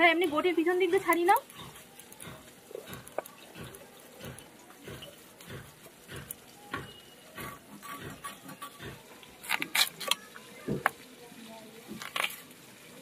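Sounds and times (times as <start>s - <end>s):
potato scraped against blade: 7.4s - 10.2s.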